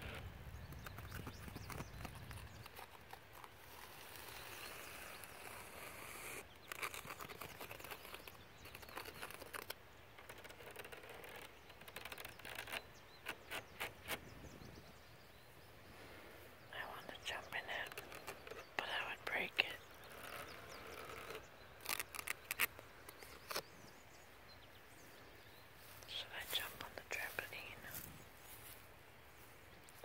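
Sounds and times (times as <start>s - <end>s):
fingernails scratching and tapping mesh: 6.7s - 14.2s
outdoor background hiss: 8.2s - 30.0s.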